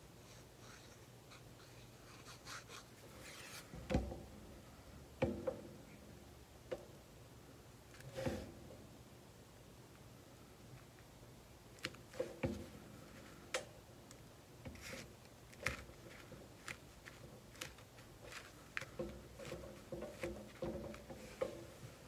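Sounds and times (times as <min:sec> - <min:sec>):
hands handling paper and card: 0:14.7 - 0:20.4.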